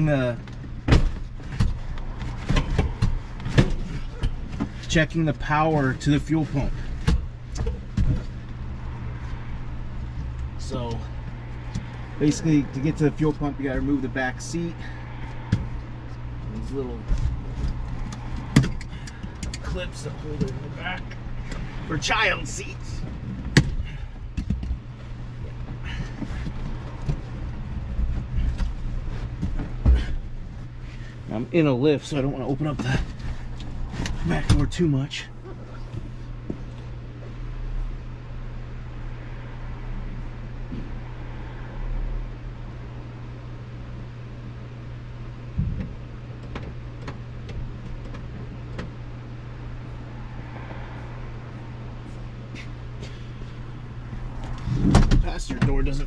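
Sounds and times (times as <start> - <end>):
steady low hum: 0.0 - 56.0
heavy thump: 45.6 - 46.0, 54.6 - 55.9.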